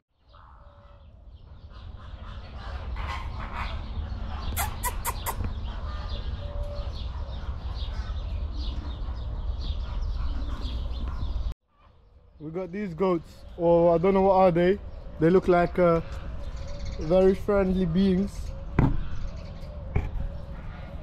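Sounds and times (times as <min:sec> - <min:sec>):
birds chirping: 0:00.1 - 0:21.0.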